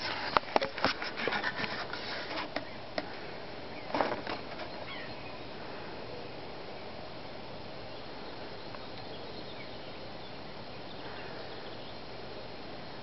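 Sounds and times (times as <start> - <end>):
outdoor background hiss: 0.0 - 13.0
faint short bird calls: 3.7 - 6.4.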